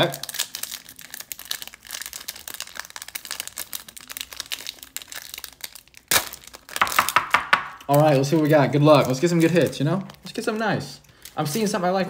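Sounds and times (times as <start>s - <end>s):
foil ripping: 0.0s - 7.2s
foil wrapper crinkling: 0.0s - 12.0s.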